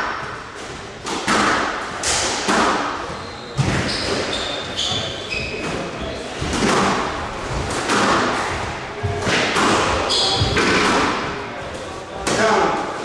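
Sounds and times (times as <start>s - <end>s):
squash ball hitting rackets and walls: 0.0s - 11.5s
shoes squeaking on floor: 3.0s - 6.6s, 9.9s - 10.8s.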